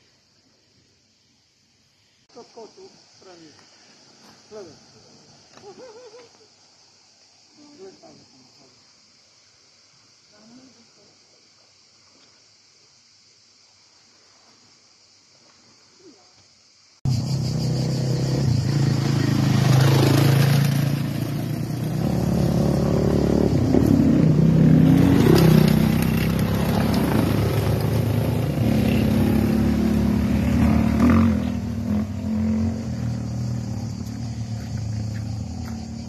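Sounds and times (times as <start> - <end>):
vehicle engine revving: 17.1 - 36.0.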